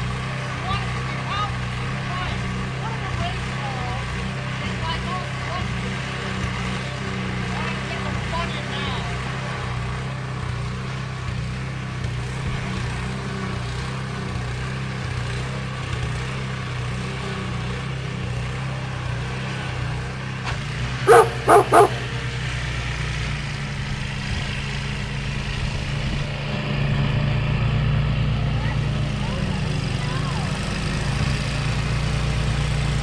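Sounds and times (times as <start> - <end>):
snowblower engines humming: 0.0 - 33.0
dog barking: 21.1 - 22.2.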